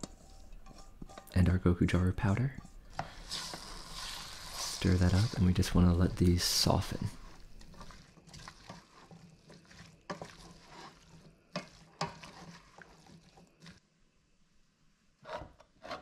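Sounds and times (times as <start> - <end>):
spatula scraping a pot: 0.0 - 1.6, 2.6 - 13.8, 15.2 - 16.0
vegetables sizzling in oil: 2.8 - 13.8.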